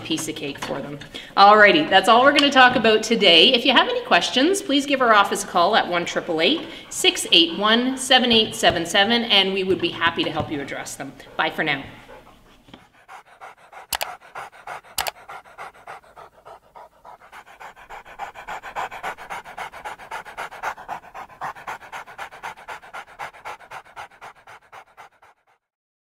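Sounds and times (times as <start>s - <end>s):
dog panting: 0.0s - 25.6s
sharp clicks: 13.8s - 14.2s, 14.9s - 15.2s.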